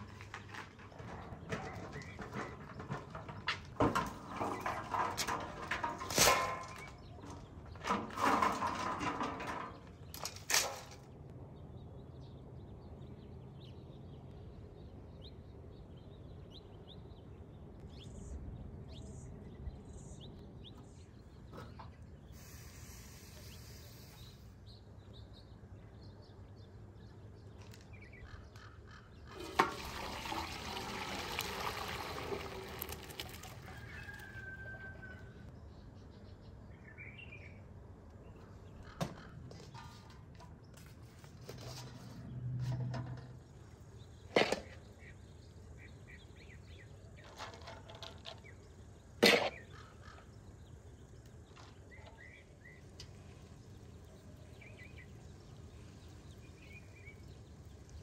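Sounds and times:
water pouring and splashing: 0:29.3 - 0:34.6
birds chirping: 0:43.1 - 0:58.0.

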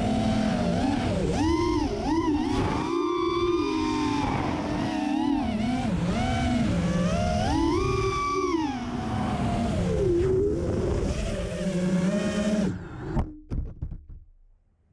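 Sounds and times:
quadcopter motors whining: 0:00.0 - 0:13.2.

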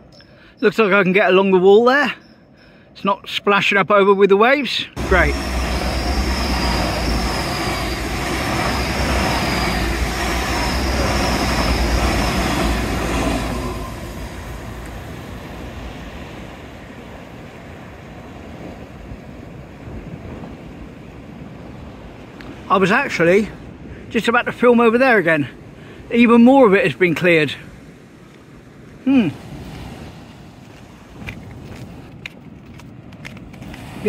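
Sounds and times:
high wavering whine: 0:05.0 - 0:16.2
train wheels rumbling on rail: 0:05.0 - 0:17.0.

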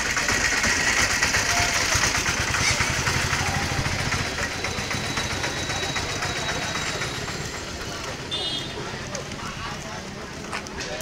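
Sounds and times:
small vehicle engine throbbing: 0:00.0 - 0:10.5
road and wind noise: 0:01.9 - 0:11.0.

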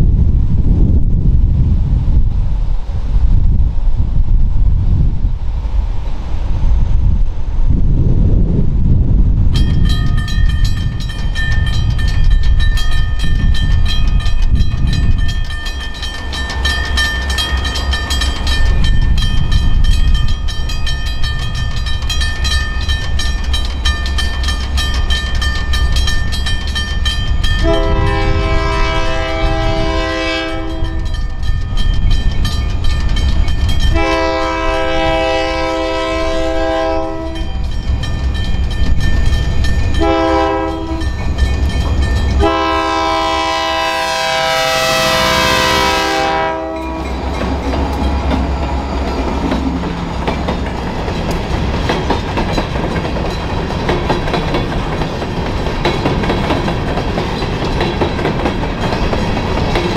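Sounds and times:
low rumble: 0:00.0 - 0:15.6
crossing bells ringing: 0:09.5 - 0:59.9
locomotive air horn blasts: 0:27.6 - 0:31.0, 0:33.9 - 0:37.5, 0:40.0 - 0:41.0, 0:42.4 - 0:47.1.

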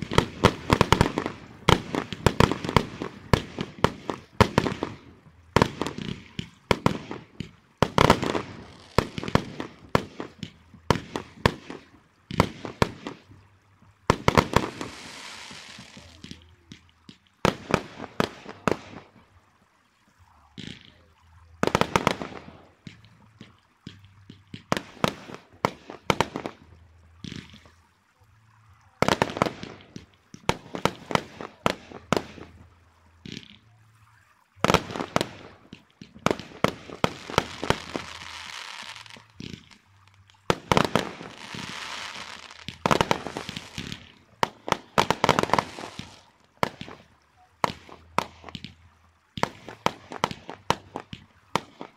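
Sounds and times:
fireworks hissing: 0:00.0 - 0:05.0, 0:05.6 - 0:13.2, 0:14.1 - 0:16.8, 0:34.6 - 0:48.8
fireworks bangs: 0:00.0 - 0:13.3, 0:14.1 - 0:19.0, 0:34.6 - 0:48.8.

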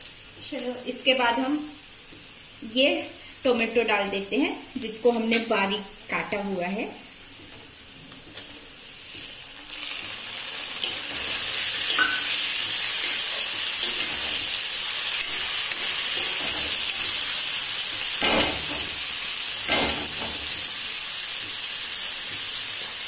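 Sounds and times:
tomatoes sizzling in hot oil: 0:00.0 - 0:23.0
spatula clinking and scraping pan: 0:10.7 - 0:17.3.

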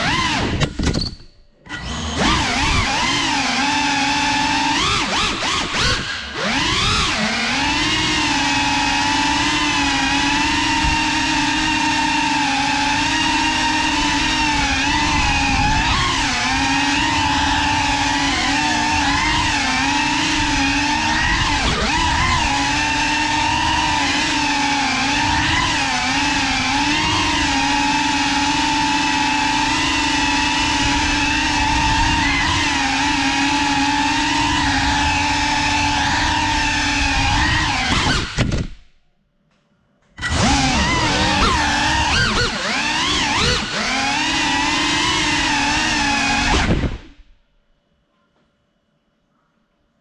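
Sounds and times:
drone motors whining: 0:00.0 - 0:38.8, 0:40.2 - 0:47.4.

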